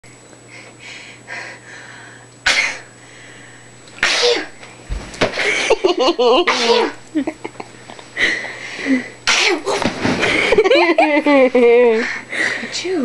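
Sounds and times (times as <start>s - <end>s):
girl sneezing: 2.4s - 2.9s, 4.0s - 4.6s, 6.5s - 7.0s, 9.2s - 9.8s.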